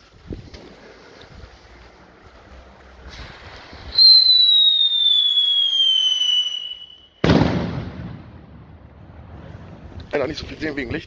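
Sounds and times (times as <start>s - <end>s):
firework bang: 3.2s - 9.4s
firework whistle falling in pitch: 3.9s - 7.4s.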